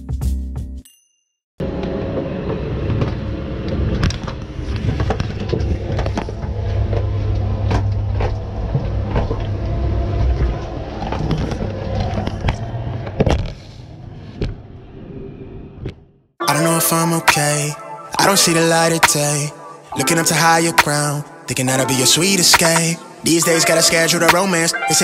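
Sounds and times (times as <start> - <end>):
vehicle rumbling: 1.6 - 16.1.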